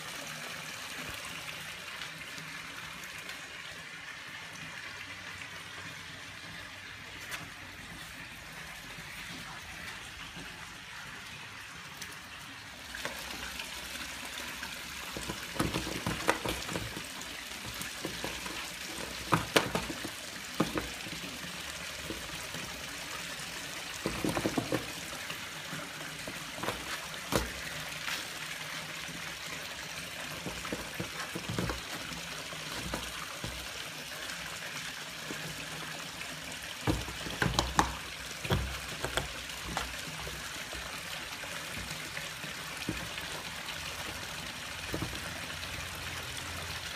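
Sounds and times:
running water trickle: 0:00.0 - 0:46.9
kitten clawing cardboard box: 0:30.4 - 0:33.7.

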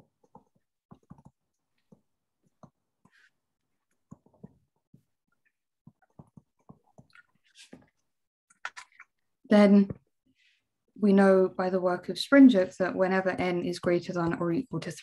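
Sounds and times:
stylus tapping on tablet screen: 0:00.0 - 0:03.3, 0:03.9 - 0:07.1.

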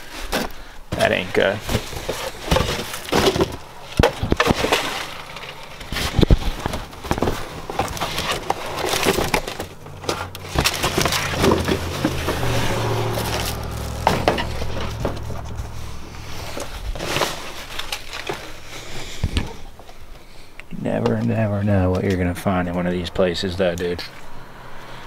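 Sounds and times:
cardboard boxes scraping and rustling: 0:00.0 - 0:20.0
low hum: 0:09.2 - 0:20.2.

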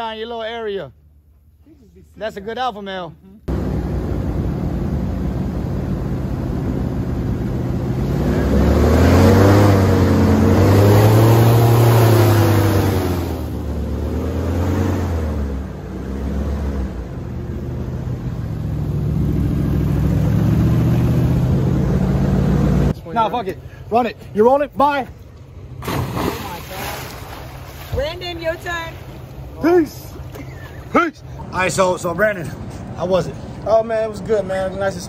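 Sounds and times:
airboat engine and propeller: 0:03.5 - 0:15.9.

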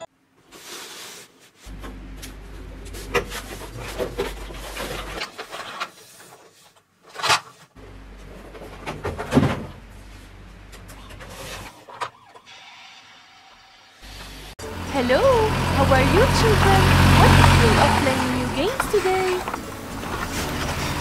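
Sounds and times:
cardboard rubbing and scraping: 0:18.2 - 0:21.0.

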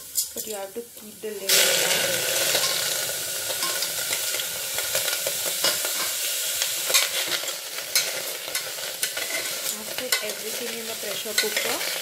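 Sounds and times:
steady hiss: 0:00.0 - 0:09.9
metal spoon scraping a pot: 0:06.9 - 0:10.4.

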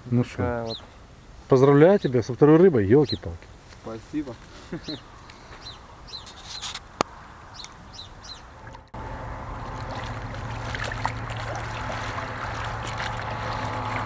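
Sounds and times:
high bird chirps: 0:04.8 - 0:06.7, 0:07.5 - 0:08.5
low hum: 0:08.3 - 0:14.0
water sloshing in shallows: 0:08.6 - 0:14.0.

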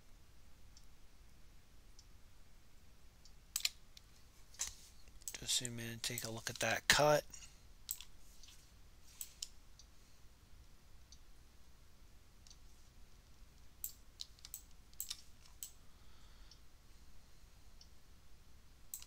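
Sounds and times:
computer mouse clicks: 0:03.6 - 0:05.4, 0:07.9 - 0:09.9, 0:13.8 - 0:15.8.

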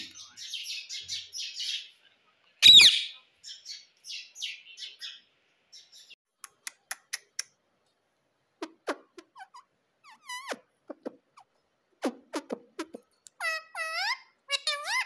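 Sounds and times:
parakeet chattering: 0:08.6 - 0:15.0.

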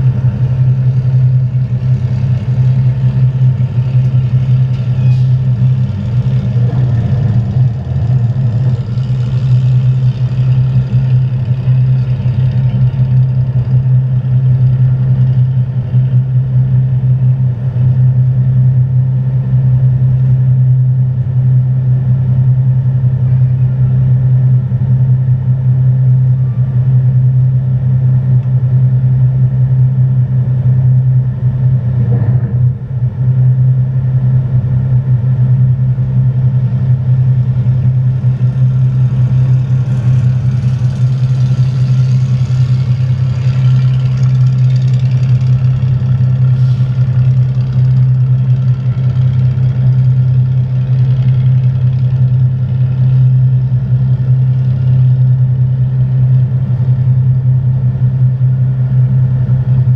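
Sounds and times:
boat engine idling: 0:00.0 - 0:59.9.

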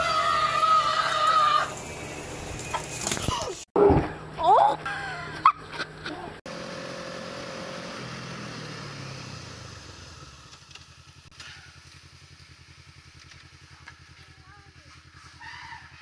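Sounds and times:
vehicle engine throbbing: 0:04.1 - 0:16.0.

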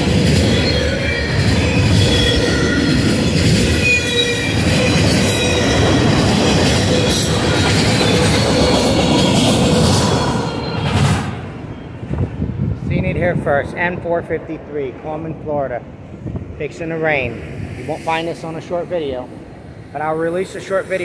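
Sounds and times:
high wheel squeal: 0:00.0 - 0:12.0
train wheels rumbling on rails: 0:00.0 - 0:21.0.

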